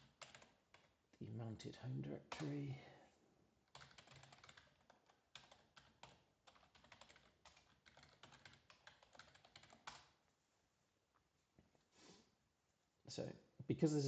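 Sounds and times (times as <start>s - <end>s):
typing on keyboard: 0.0s - 1.0s, 2.3s - 2.6s, 3.7s - 10.2s.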